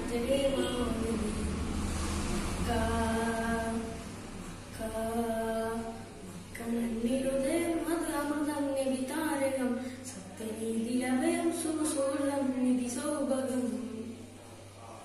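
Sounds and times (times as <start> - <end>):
boy singing unaccompanied: 0.0 - 1.6, 2.6 - 4.0, 4.7 - 9.8, 10.4 - 14.1.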